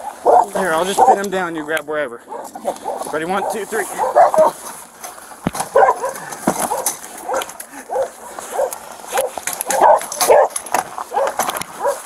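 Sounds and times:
dog barking and yelping: 0:00.0 - 0:01.3, 0:02.2 - 0:04.6, 0:05.7 - 0:12.0.

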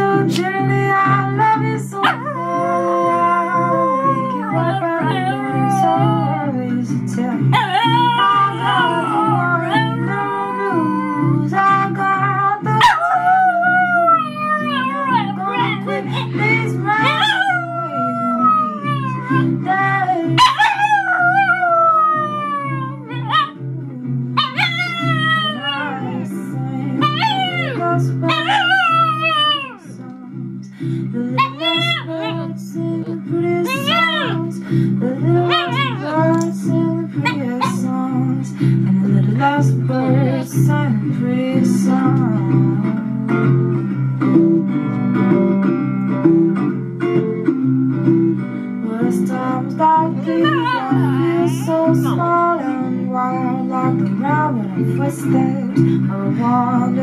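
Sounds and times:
strummed acoustic guitar: 0:00.0 - 0:21.0, 0:21.6 - 0:57.0
recorded song: 0:00.0 - 0:57.0
sung melody: 0:00.0 - 0:57.0
dog howling: 0:02.0 - 0:06.6, 0:07.5 - 0:11.4, 0:12.8 - 0:19.6, 0:20.4 - 0:23.6, 0:24.4 - 0:29.9, 0:31.4 - 0:32.5, 0:33.6 - 0:34.5, 0:35.3 - 0:36.5, 0:37.2 - 0:37.9, 0:50.0 - 0:52.7.

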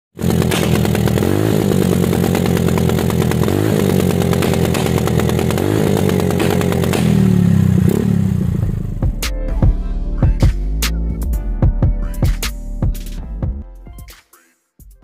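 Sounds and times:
scooter engine running: 0:00.1 - 0:09.2
exhaust backfire pops: 0:00.2 - 0:09.3.

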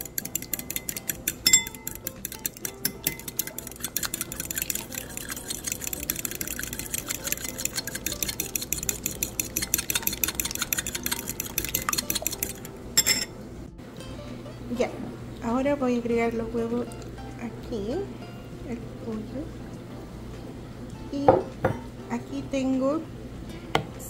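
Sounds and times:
fork clinking against glass bowl: 0:00.0 - 0:13.3.

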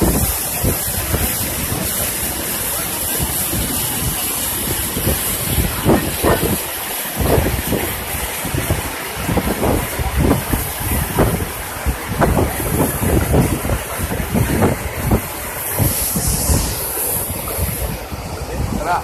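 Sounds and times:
water gushing from an outlet: 0:00.0 - 0:19.0.

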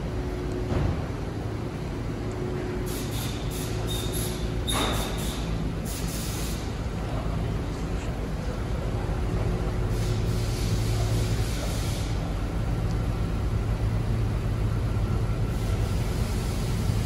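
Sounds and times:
van engine humming: 0:12.1 - 0:17.0.

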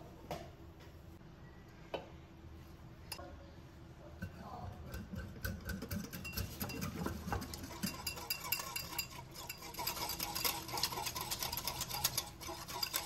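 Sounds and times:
wire whisk beating in bowl: 0:04.2 - 0:13.0.

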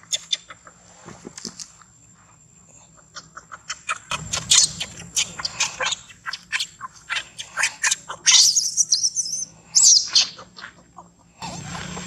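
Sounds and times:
baby monkey screaming: 0:03.7 - 0:12.0.

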